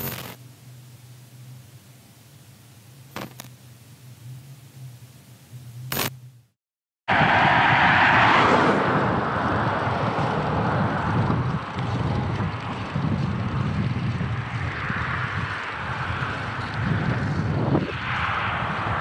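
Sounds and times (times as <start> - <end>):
car passing: 7.1 - 19.0
wind buffeting microphone: 7.1 - 19.0.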